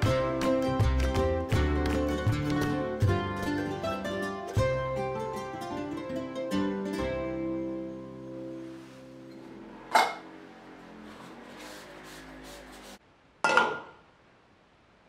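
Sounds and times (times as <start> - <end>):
plucked-string background music: 0.0 - 11.2.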